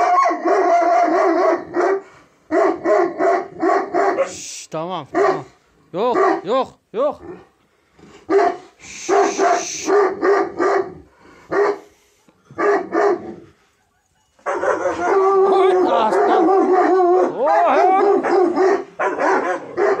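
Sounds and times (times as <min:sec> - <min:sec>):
dog barking and yelping: 0:00.0 - 0:04.5, 0:05.1 - 0:06.6, 0:07.2 - 0:07.6, 0:08.2 - 0:11.9, 0:12.5 - 0:20.0.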